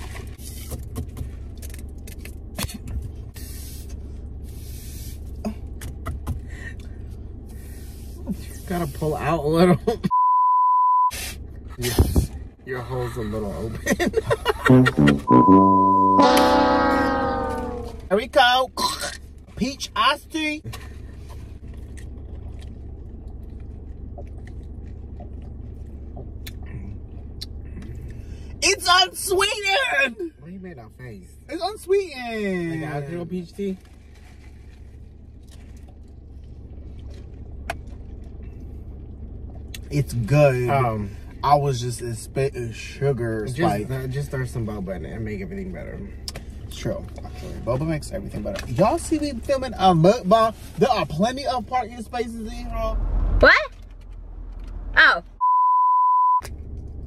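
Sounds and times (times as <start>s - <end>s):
low hum in car cabin: 0.0s - 57.0s
low hum: 11.0s - 18.1s
lips clicking and swallowing: 21.8s - 26.7s.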